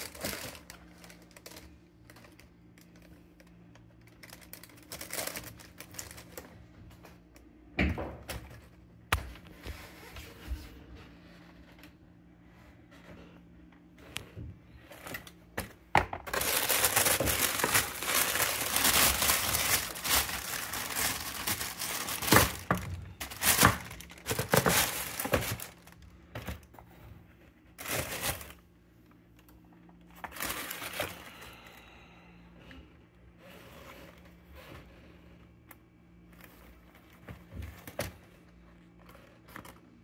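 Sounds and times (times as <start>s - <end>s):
packaging crinkling and rustling: 0.0s - 7.5s, 14.7s - 28.7s, 29.3s - 31.8s, 36.2s - 40.0s.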